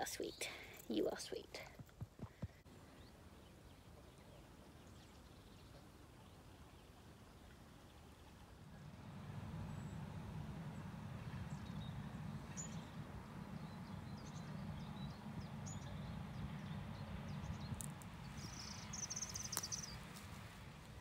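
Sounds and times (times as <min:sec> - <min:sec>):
songbirds chirping: 0:00.0 - 0:01.8, 0:02.5 - 0:21.0
steady low rumble: 0:07.7 - 0:21.0
buzzy bird trill: 0:18.4 - 0:19.9.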